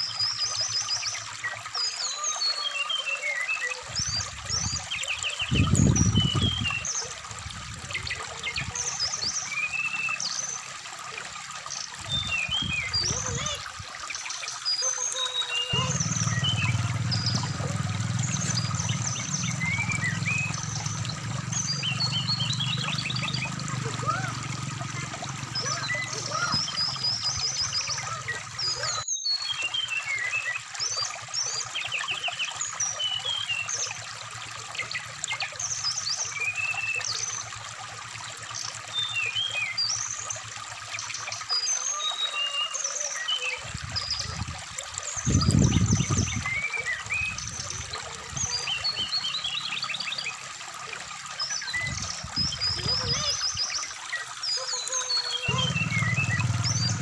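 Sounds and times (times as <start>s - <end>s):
bird chirps and trills: 0.0s - 37.5s, 38.5s - 57.0s
stream trickling: 0.0s - 57.0s
loud low rumble: 15.8s - 24.6s, 55.5s - 57.0s.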